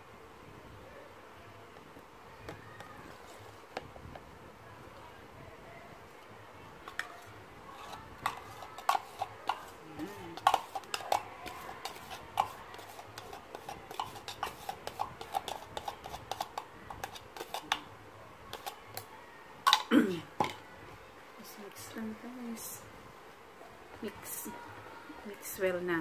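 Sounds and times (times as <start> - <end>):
utensil clinking and scraping container: 6.9 - 17.8.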